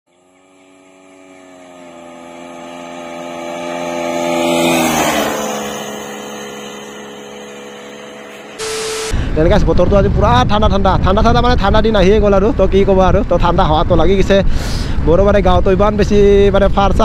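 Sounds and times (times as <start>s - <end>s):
motorcycle engine passing by: 0.1s - 8.6s.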